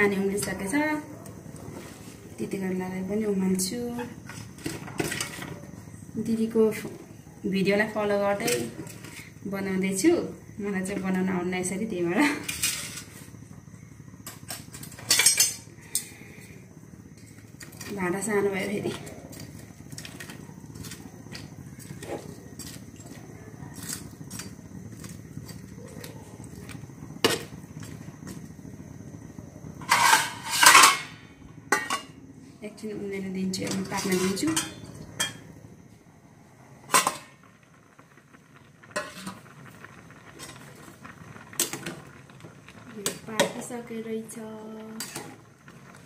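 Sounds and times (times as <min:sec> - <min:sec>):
pan bubbling at a boil: 0:00.0 - 0:46.0
spatula scraping a pan: 0:29.8 - 0:31.1, 0:33.8 - 0:34.8, 0:39.0 - 0:39.4
pot lid clanking on metal: 0:29.8 - 0:32.1, 0:36.9 - 0:37.3.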